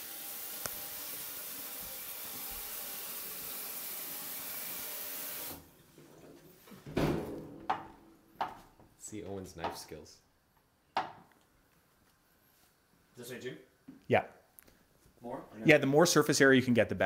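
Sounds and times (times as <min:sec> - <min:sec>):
faucet running into a sink: 0:00.0 - 0:05.6.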